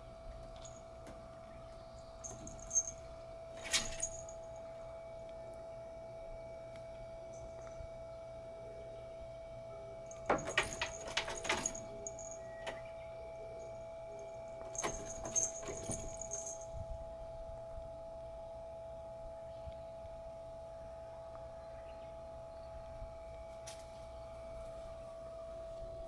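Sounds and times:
faint hum: 0.0 - 26.0
high jingle with rattling: 2.2 - 3.0, 3.6 - 4.5, 10.1 - 12.8, 14.2 - 16.7
cats pawing at netting: 10.2 - 12.8, 14.6 - 16.6.

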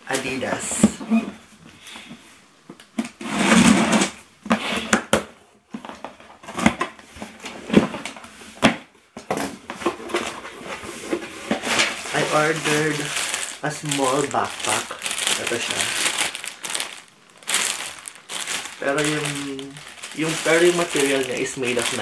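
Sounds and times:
packaging rustling and scraping: 9.3 - 22.0.

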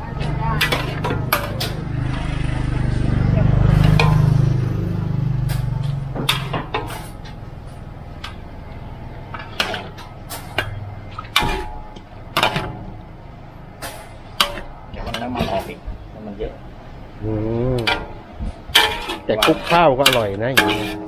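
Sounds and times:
metal spatula scraping in a wok: 0.2 - 2.9, 5.4 - 12.9, 13.8 - 15.9, 17.8 - 21.0
low hum: 1.3 - 10.1.

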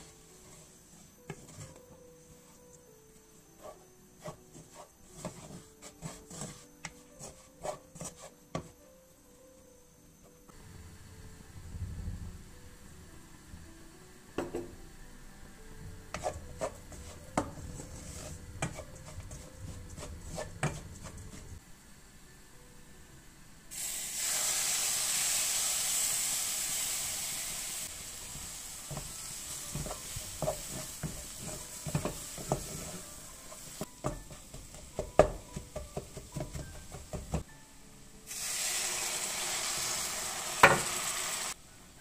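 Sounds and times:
wooden spatula stirring in pan: 0.0 - 2.6, 3.3 - 8.8, 16.1 - 21.6, 28.3 - 37.4
hot fat sizzling in pan: 23.7 - 33.9, 38.3 - 41.6.

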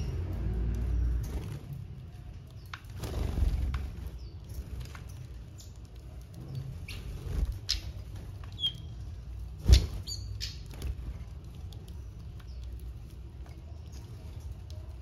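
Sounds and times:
high bird chirps: 6.5 - 9.0, 9.7 - 10.7.

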